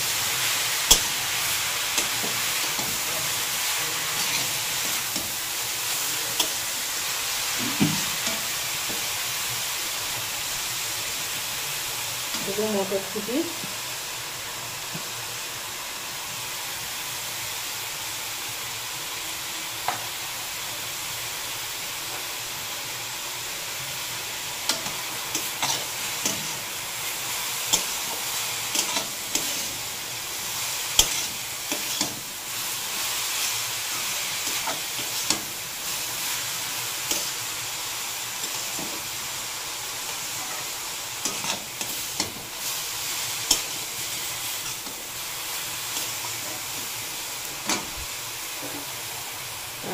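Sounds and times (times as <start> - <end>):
vegetables sizzling in hot oil: 0.0 - 49.9
metal spatula scraping a pan: 0.4 - 5.4, 24.7 - 36.4, 40.1 - 45.1.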